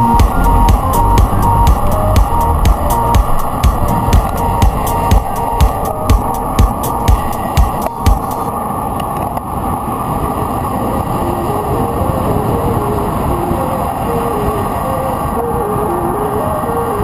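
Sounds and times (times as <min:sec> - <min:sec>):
background music with beat: 0:00.0 - 0:08.5
soft stepping melody: 0:00.0 - 0:08.5
rushing wind noise: 0:00.0 - 0:17.0.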